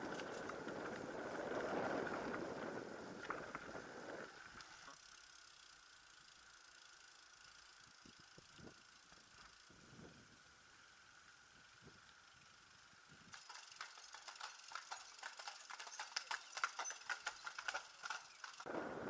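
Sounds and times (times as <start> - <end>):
bicycle rumbling: 0.0 - 19.0
faint ticks: 3.2 - 10.1, 11.1 - 18.7.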